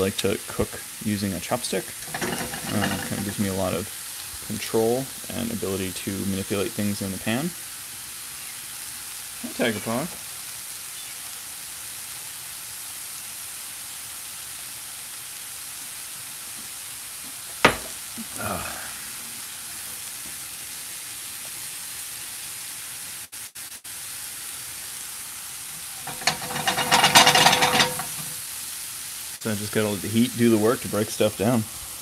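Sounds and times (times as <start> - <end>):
mushrooms sizzling in a pan: 0.0 - 32.0
sharp knock: 17.6 - 18.0.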